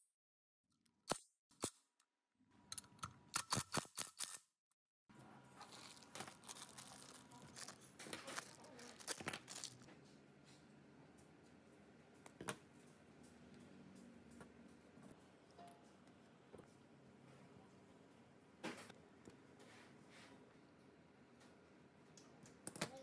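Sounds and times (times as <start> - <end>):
plastic bag crinkling: 5.6 - 9.9.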